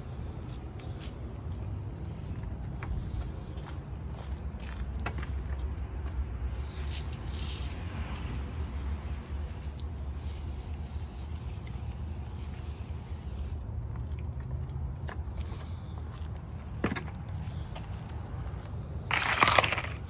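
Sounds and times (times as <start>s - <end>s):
pump sprayer hissing: 0.0s - 0.7s, 6.5s - 13.7s.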